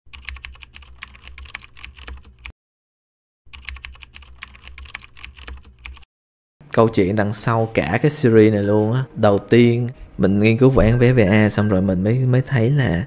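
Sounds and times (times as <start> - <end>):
keyboard typing: 0.1 - 2.5, 3.5 - 6.1.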